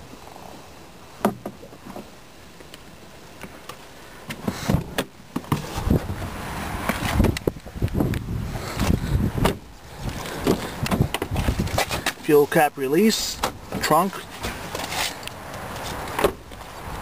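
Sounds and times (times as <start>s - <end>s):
car door opening: 8.8s - 9.7s
handling knocks and rustling: 8.8s - 12.2s, 13.4s - 16.8s.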